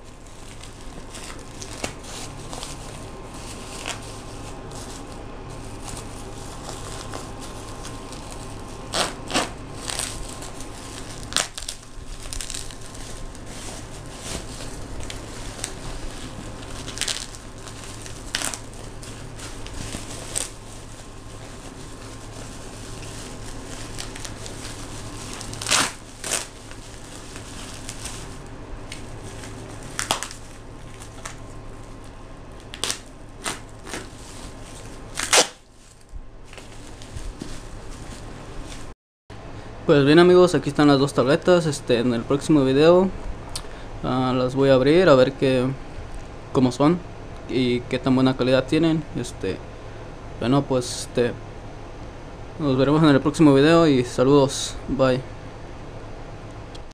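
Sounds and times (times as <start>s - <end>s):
bubble wrap crackling: 0.0s - 39.0s
plastic bag rustling: 0.0s - 39.0s.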